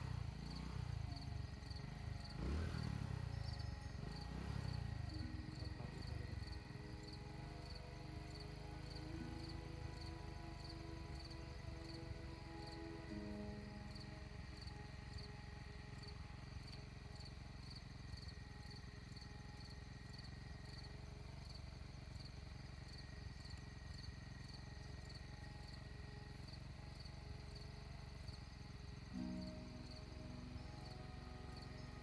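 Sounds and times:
insects chirping: 0:00.0 - 0:32.0
low background rumble: 0:00.0 - 0:32.0.

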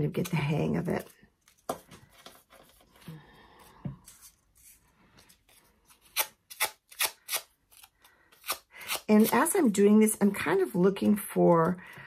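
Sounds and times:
scissor blade scraping paper: 0:05.9 - 0:09.7.

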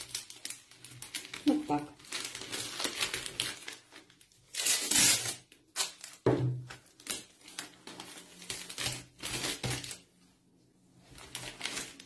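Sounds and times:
plastic wrapping crinkling: 0:00.0 - 0:12.0
tape ripping off roll: 0:04.5 - 0:07.3.

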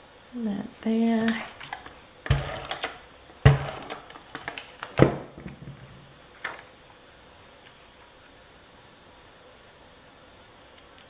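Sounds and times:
tape runner strokes with clicks: 0:01.2 - 0:05.0.

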